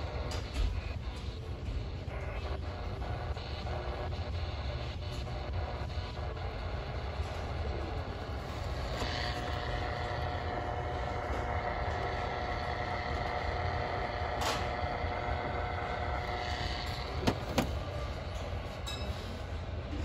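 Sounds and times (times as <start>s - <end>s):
steady low hum: 0.0s - 20.0s
plastic clock radio handling: 17.2s - 17.8s.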